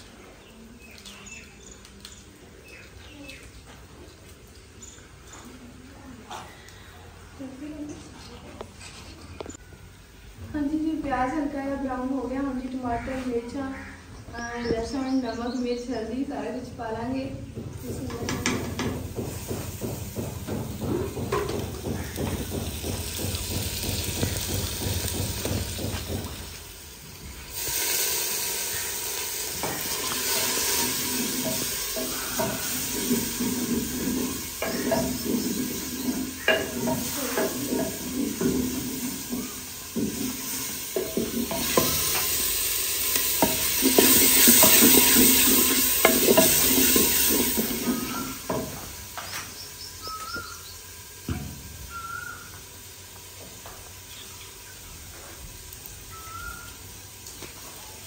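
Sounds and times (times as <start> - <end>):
food sizzling in hot oil: 18.2 - 58.0
wooden spoon scraping clay pot: 43.1 - 48.4.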